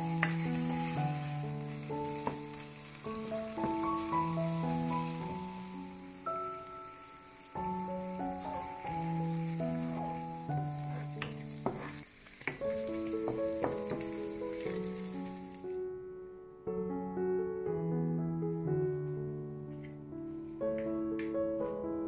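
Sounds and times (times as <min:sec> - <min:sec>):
wooden spoon scraping a pan: 0:00.0 - 0:05.5, 0:08.3 - 0:15.2
bacon sizzling in a frying pan: 0:00.0 - 0:15.7
soft piano background music: 0:00.0 - 0:22.0.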